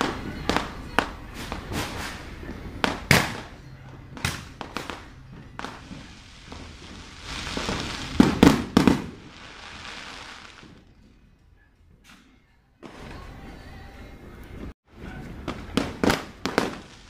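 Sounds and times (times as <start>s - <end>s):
fireworks bangs: 0.0s - 10.9s, 15.0s - 17.0s
fireworks crackling: 0.0s - 11.0s, 15.3s - 17.0s.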